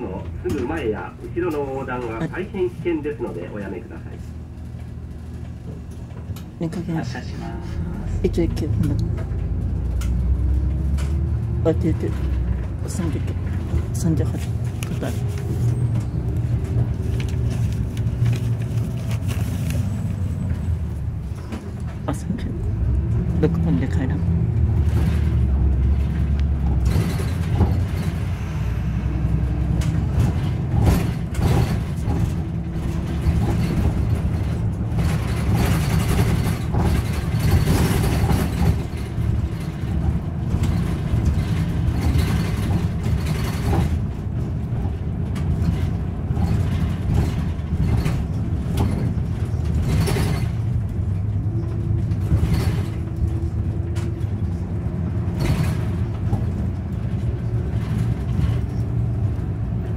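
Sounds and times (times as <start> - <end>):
bus engine running: 0.0 - 59.9
road noise: 0.0 - 59.9.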